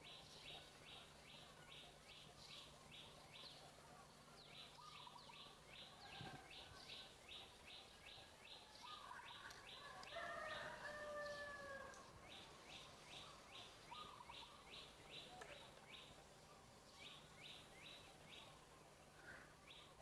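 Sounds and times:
bird chirping: 0.0 - 20.0
lower whistled bird call: 12.7 - 16.1.

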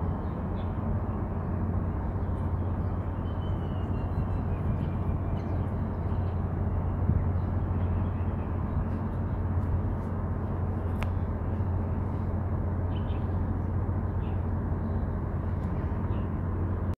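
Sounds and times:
low outdoor rumble: 0.0 - 17.0
faint high chirp: 2.8 - 6.3.

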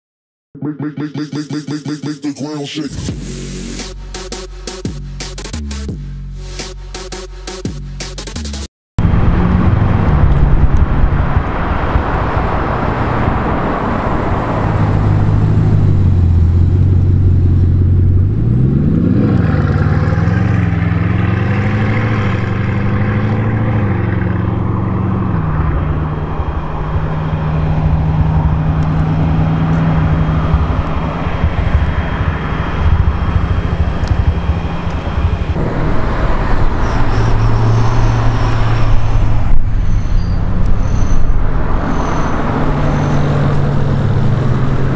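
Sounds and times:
sports car engine accelerating: 9.0 - 44.9.

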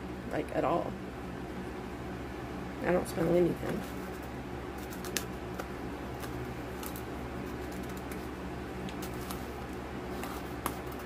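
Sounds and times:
low background hum: 0.0 - 11.0
packaging clicks and rustles: 4.0 - 8.3, 8.9 - 11.0.

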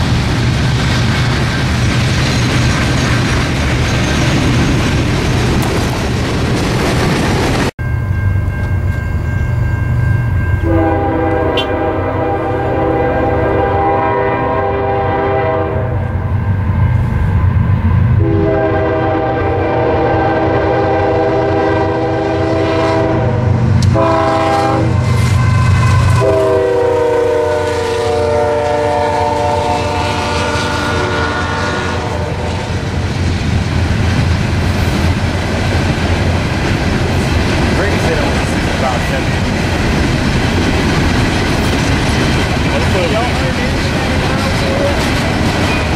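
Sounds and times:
freight cars rattling on rails: 0.0 - 7.7, 32.6 - 45.9
train rumbling: 0.0 - 45.9
locomotive air horn blasts: 10.6 - 16.2, 18.2 - 32.7.

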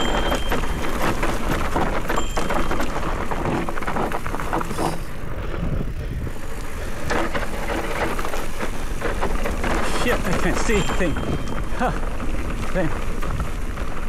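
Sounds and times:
bike rattling: 0.0 - 14.0
tyres crunching over loose ground: 0.0 - 14.0.

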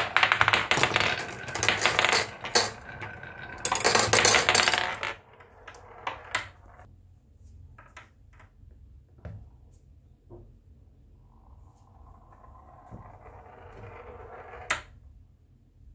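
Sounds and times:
marbles clattering down wooden run: 0.0 - 6.9
marbles knocking on hard surface: 0.0 - 6.9, 12.4 - 14.9.

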